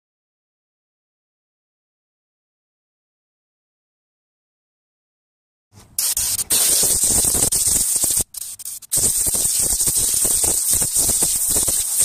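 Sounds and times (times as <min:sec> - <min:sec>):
compressed air blow gun hissing: 0:06.0 - 0:12.0.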